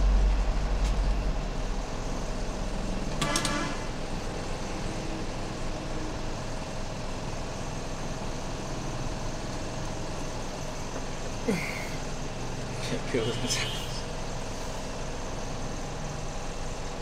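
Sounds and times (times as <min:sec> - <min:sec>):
low hum: 0:00.0 - 0:07.4.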